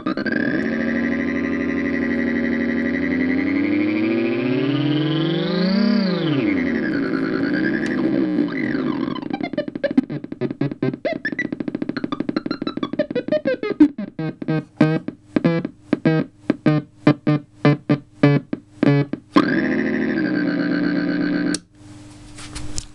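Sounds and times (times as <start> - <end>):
rapid electronic beeps: 0.0 - 19.5
buzzy electronic tone: 0.0 - 21.6.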